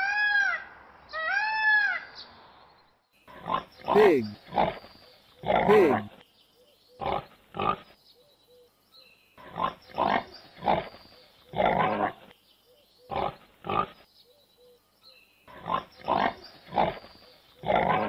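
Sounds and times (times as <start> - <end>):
pigs grunting: 3.3 - 6.2, 7.0 - 7.9, 9.4 - 12.3, 13.1 - 14.0, 15.5 - 18.0.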